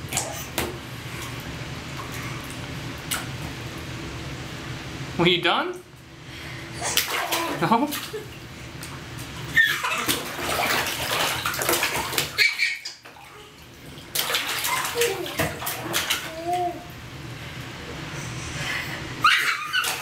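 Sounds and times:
water splashing in plastic tub: 6.8s - 16.9s, 19.2s - 20.0s
baby cooing: 16.3s - 16.9s.

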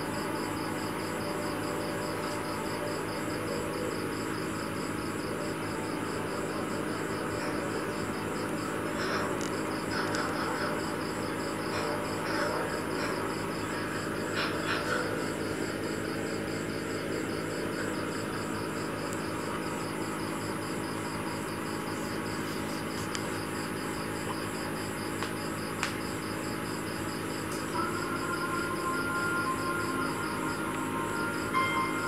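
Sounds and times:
aquarium equipment humming: 0.0s - 32.0s
high pulsing chirp: 27.6s - 32.0s.

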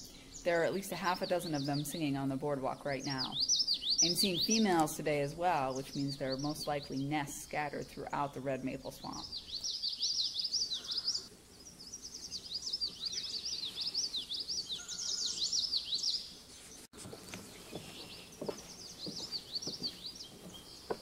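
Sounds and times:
faint birdsong: 0.0s - 21.0s
bird song high notes: 9.0s - 16.3s
footsteps on wooden boardwalk: 17.0s - 21.0s.

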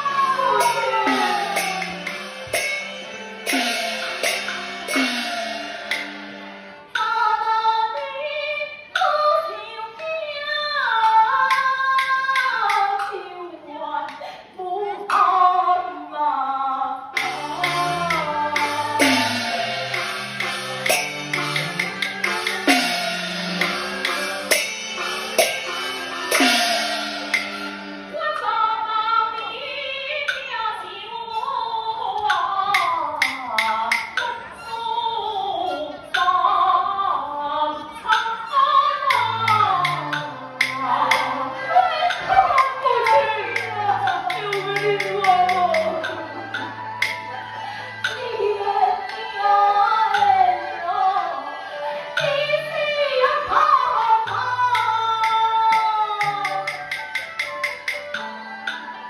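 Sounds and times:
woman singing high aria: 0.0s - 5.7s, 6.9s - 20.0s, 28.1s - 58.3s
ringing percussion strokes: 0.0s - 7.2s, 17.2s - 28.1s, 39.1s - 48.2s, 55.2s - 58.9s
opera band instruments: 0.0s - 59.0s.

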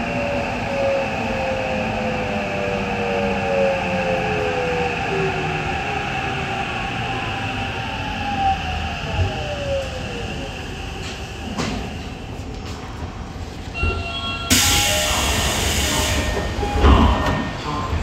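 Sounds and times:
air hiss from train brakes: 14.5s - 16.6s.

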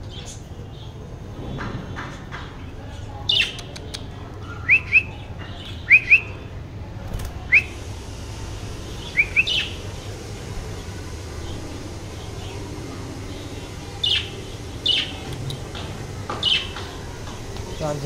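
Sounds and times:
budgerigars chirping: 8.8s - 18.0s.

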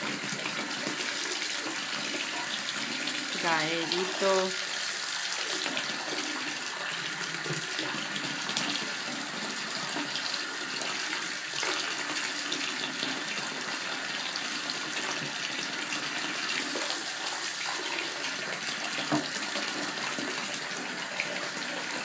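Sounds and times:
water running from bathtub tap: 0.0s - 22.0s.

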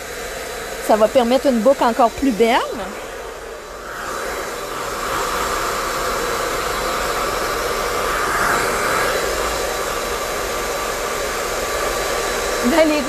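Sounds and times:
hair dryer blowing: 0.0s - 13.0s.

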